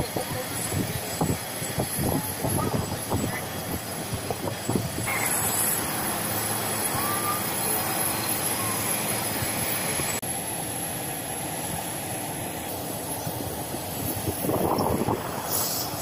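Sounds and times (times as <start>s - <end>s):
mechanical drone: 0.0s - 10.2s
thin high whine: 0.4s - 10.2s.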